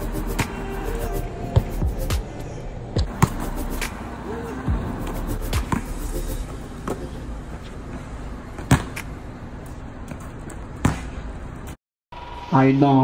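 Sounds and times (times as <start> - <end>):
basketball bouncing on court: 3.0 - 3.4, 8.6 - 9.1, 10.1 - 11.2.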